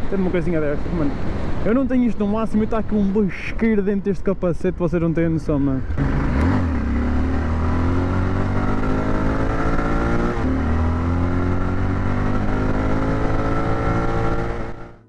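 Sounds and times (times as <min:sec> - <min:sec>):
motorcycle engine accelerating: 0:05.9 - 0:15.0.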